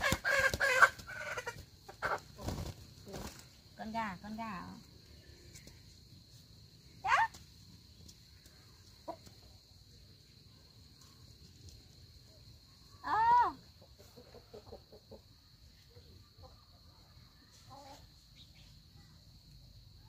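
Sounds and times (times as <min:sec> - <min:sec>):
chicken calling: 0:00.0 - 0:02.7
soft chicken clucks: 0:00.0 - 0:03.4, 0:07.9 - 0:09.9, 0:13.6 - 0:18.9.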